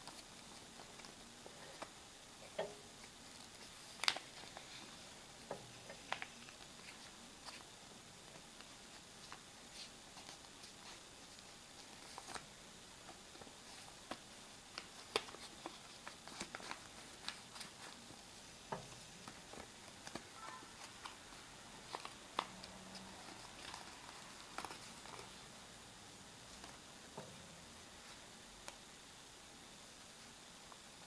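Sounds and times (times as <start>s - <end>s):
paper crinkling: 0.0s - 2.0s, 3.0s - 18.2s, 19.2s - 25.5s.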